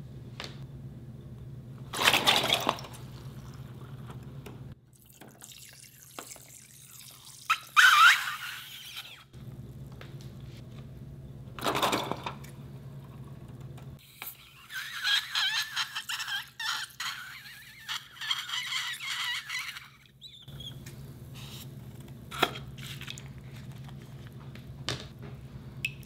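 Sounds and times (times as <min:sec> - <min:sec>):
low steady hum: 0:00.0 - 0:06.9, 0:09.3 - 0:14.1.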